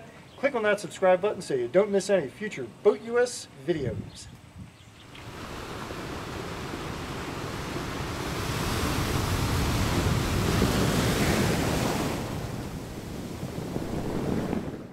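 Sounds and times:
ocean waves rushing: 0:05.1 - 0:14.9.

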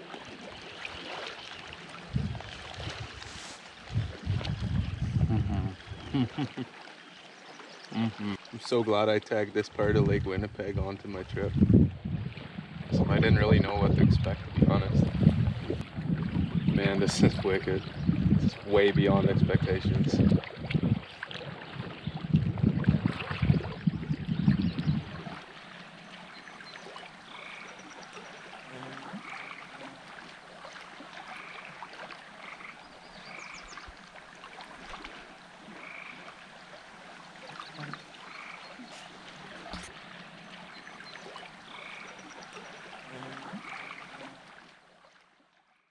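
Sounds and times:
frogs croaking: 0:20.8 - 0:44.7.

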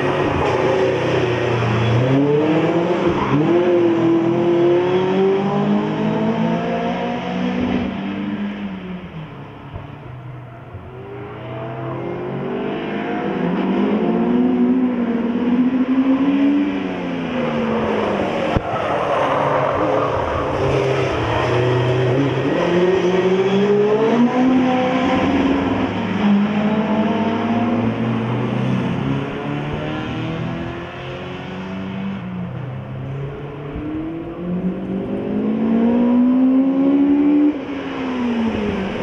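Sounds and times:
race car engines revving: 0:00.0 - 0:39.0.

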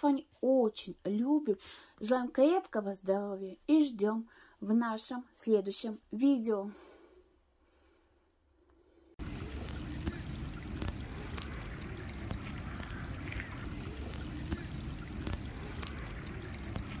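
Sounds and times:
water rushing over steps: 0:09.2 - 0:17.0.

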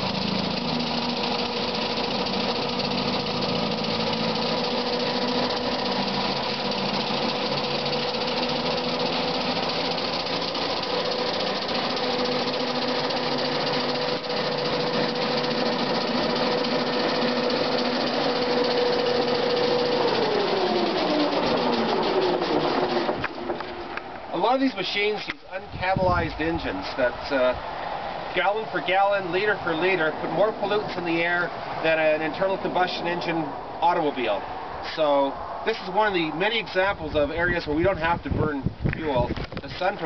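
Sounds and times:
electric motor whine: 0:00.0 - 0:24.0.

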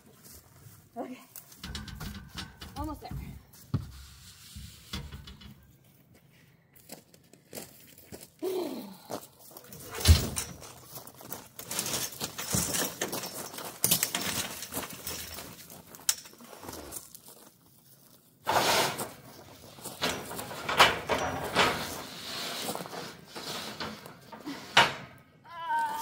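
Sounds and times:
steel clanking and rattling: 0:01.5 - 0:05.7, 0:18.5 - 0:25.2
steel sheet scraping: 0:03.9 - 0:05.7, 0:18.4 - 0:25.1.

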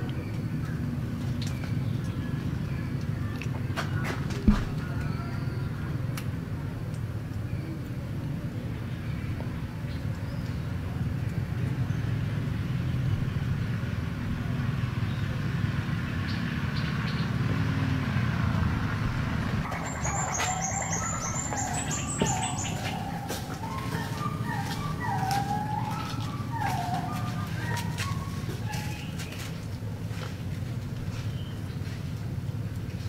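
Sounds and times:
birds chirping: 0:00.0 - 0:06.1, 0:14.4 - 0:17.8, 0:19.6 - 0:32.7.

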